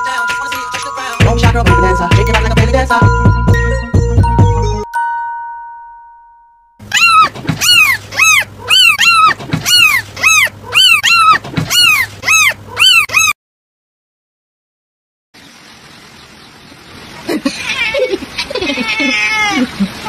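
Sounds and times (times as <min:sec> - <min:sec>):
music track held tone: 0:00.0 - 0:06.8
small animal yelping: 0:06.9 - 0:13.4.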